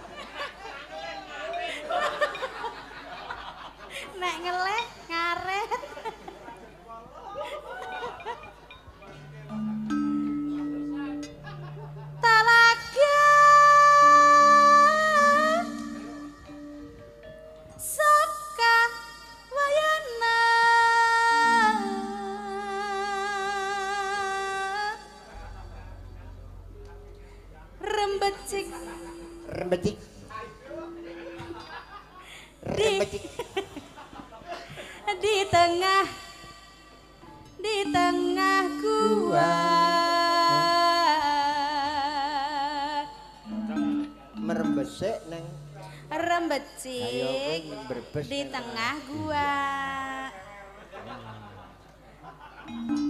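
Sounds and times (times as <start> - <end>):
woman singing with vibrato: 12.1 - 16.8, 17.8 - 25.8, 27.8 - 29.6, 32.6 - 33.4, 35.1 - 37.0, 37.6 - 44.2, 45.6 - 47.4, 48.4 - 50.3
low steady tone: 13.6 - 19.5, 21.4 - 32.2, 42.9 - 47.3.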